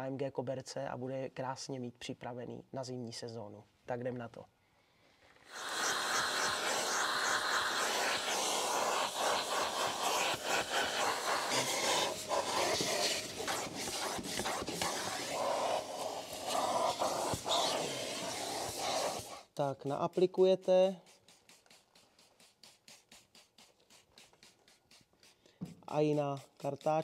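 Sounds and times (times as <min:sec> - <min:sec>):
vacuum cleaner running: 0:05.5 - 0:19.3.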